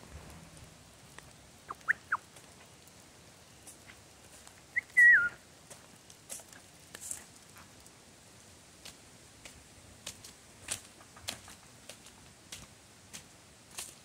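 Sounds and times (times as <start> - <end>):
person whistling: 4.8 - 5.4.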